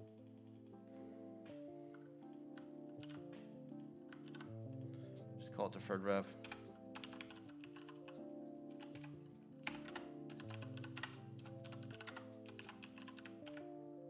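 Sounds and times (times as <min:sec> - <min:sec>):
quiet background music: 0:00.0 - 0:14.0
keyboard key clicks: 0:02.2 - 0:04.9.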